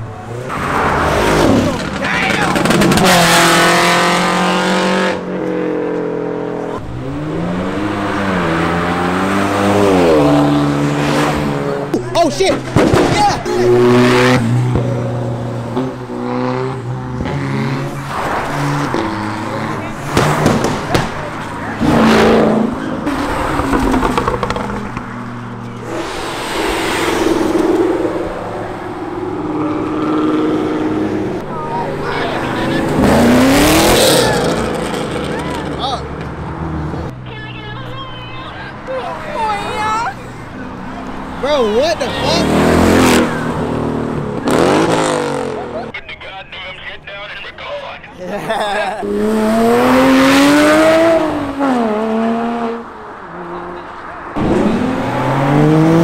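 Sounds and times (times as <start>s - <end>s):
sports car engines revving: 0.0s - 56.0s.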